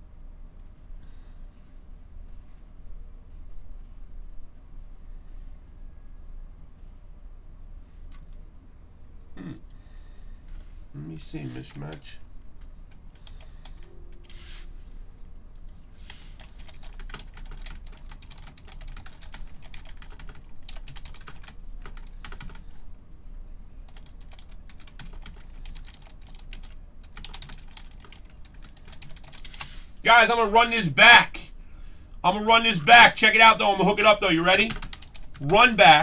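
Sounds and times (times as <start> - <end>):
keyboard typing clicks: 23.9 - 29.7.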